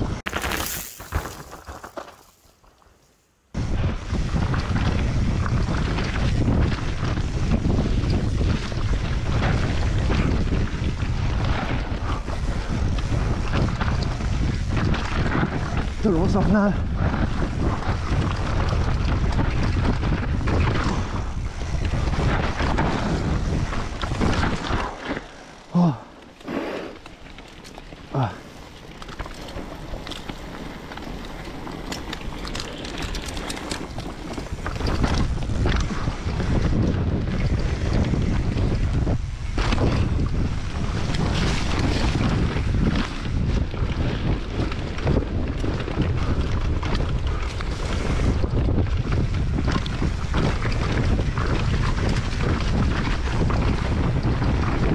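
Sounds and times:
mountain bike rattling on rough trail: 0:00.0 - 0:54.9
wind on microphone: 0:03.6 - 0:27.0, 0:29.2 - 0:54.9
heavy rumble: 0:03.6 - 0:27.4, 0:28.0 - 0:54.9
bike chain rattling clicks: 0:27.0 - 0:36.6.

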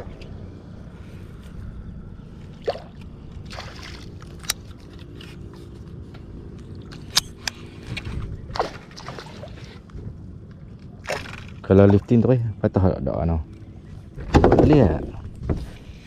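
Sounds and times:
water sloshing against boat: 0:00.0 - 0:12.7.

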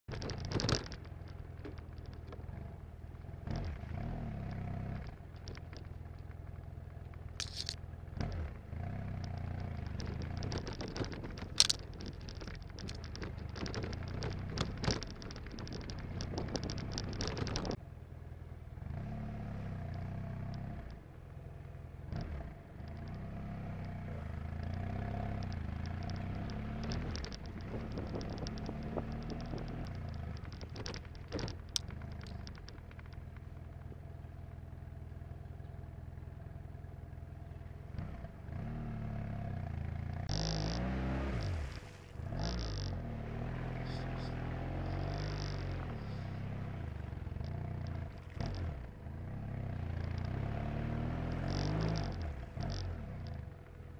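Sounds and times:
sharp crackles and knocks: 0:00.0 - 0:17.8, 0:22.1 - 0:36.0, 0:36.6 - 0:53.9
motorcycle engine at low speed: 0:00.0 - 0:53.9
wind rustle on microphone: 0:09.1 - 0:17.8, 0:24.6 - 0:33.2.

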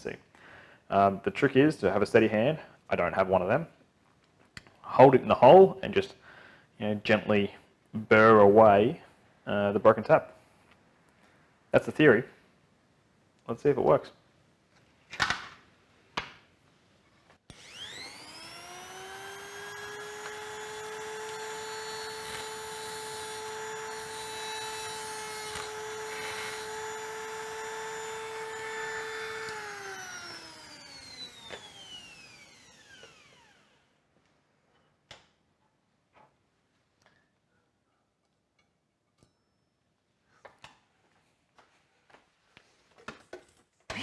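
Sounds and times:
rotary tool whining: 0:17.5 - 0:33.9.

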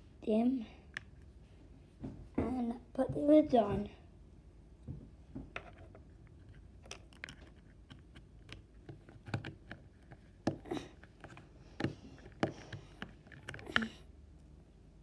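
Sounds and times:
plastic lids clicking and tapping: 0:06.8 - 0:14.0.

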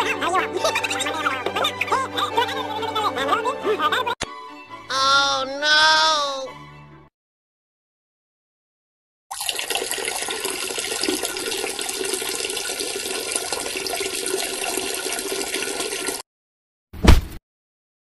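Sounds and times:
person urinating: 0:09.3 - 0:16.2.

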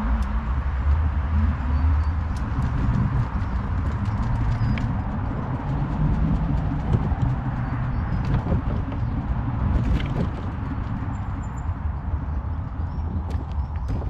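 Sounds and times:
trolley wheels rumbling on asphalt: 0:00.0 - 0:14.0
hull and cart knocking: 0:02.4 - 0:11.4, 0:13.1 - 0:14.0.

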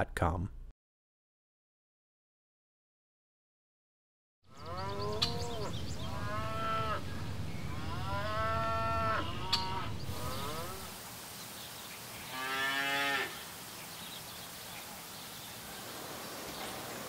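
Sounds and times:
cattle mooing: 0:04.5 - 0:11.0, 0:12.3 - 0:13.3.

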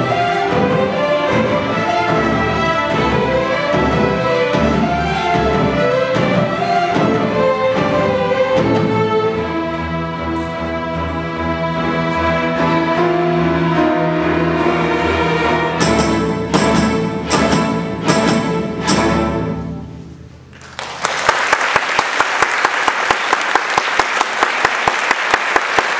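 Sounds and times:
loud accented orchestral hits: 0:00.0 - 0:09.6, 0:12.0 - 0:20.3
string orchestra playing chords: 0:00.0 - 0:20.5
audience applause: 0:20.5 - 0:25.9.

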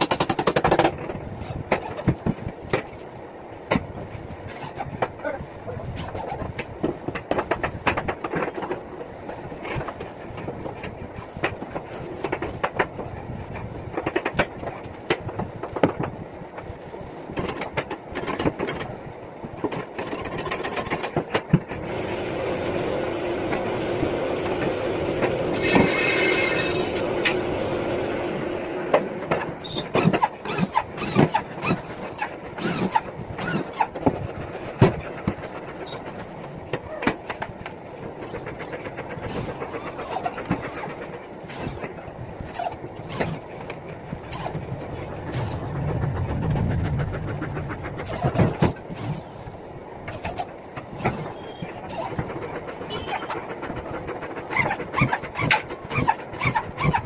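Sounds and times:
brief mechanical squeal: 0:25.6 - 0:26.9, 0:29.6 - 0:31.2, 0:51.0 - 0:52.1, 0:52.9 - 0:53.4
mechanical running sound: 0:42.5 - 0:57.0.

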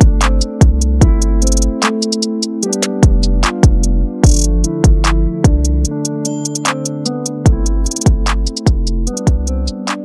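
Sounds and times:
drum beat: 0:00.0 - 0:01.6, 0:03.0 - 0:05.9, 0:07.5 - 0:09.5
bass: 0:00.0 - 0:01.8, 0:03.0 - 0:06.0, 0:07.5 - 0:09.8
keyboard chords: 0:00.0 - 0:10.0.

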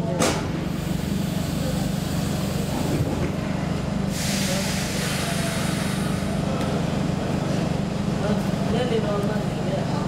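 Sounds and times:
train electrical hum: 0:00.0 - 0:10.0
compressed air hiss: 0:04.1 - 0:06.3.

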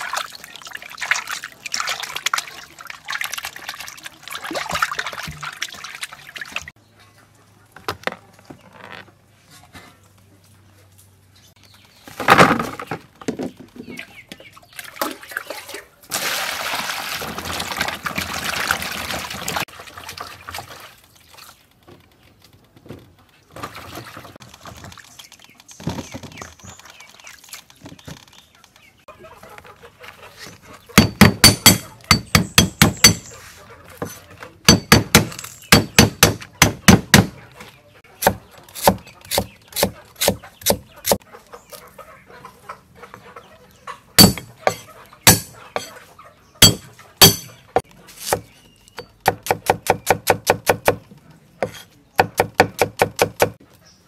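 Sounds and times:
water pouring: 0:00.0 - 0:06.7, 0:14.9 - 0:21.5
cleaver chopping on wooden board: 0:31.0 - 0:33.3, 0:34.7 - 0:37.4, 0:38.2 - 0:41.2, 0:44.2 - 0:45.9, 0:46.6 - 0:47.5, 0:49.2 - 0:51.0, 0:51.6 - 0:53.6.

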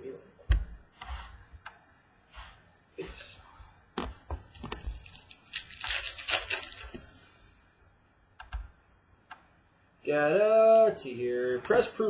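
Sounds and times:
plastic wrapper crinkling: 0:04.5 - 0:07.2.

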